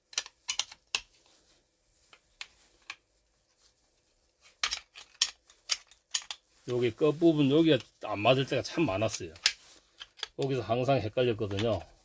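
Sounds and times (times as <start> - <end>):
metal gun parts clicking: 0.1 - 1.1, 4.6 - 6.4, 9.1 - 10.5.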